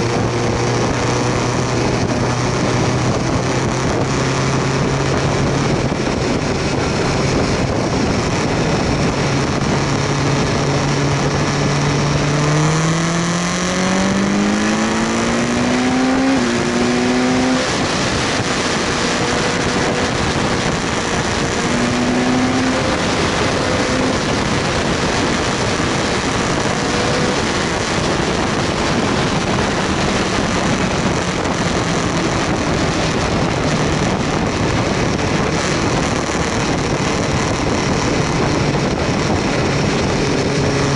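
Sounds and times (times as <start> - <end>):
motorcycle engine running: 0.0 - 40.9
wind rush on microphone: 0.0 - 40.9.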